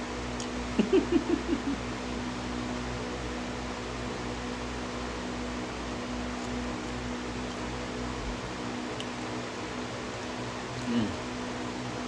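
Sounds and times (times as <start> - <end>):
steady indoor hum: 0.0 - 12.0
man humming while eating: 10.8 - 11.3.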